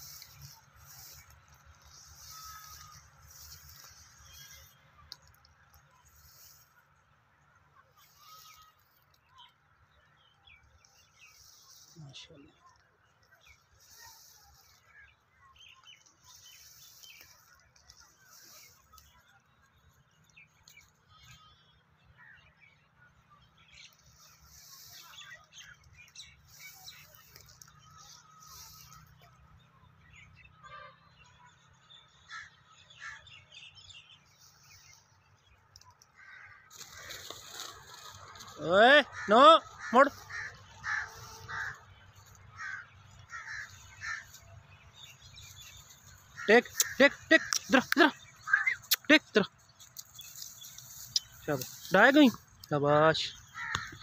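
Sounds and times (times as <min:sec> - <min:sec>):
faint birds chirping: 0:00.0 - 0:54.0
crow cawing: 0:39.1 - 0:44.4, 0:53.4 - 0:54.0.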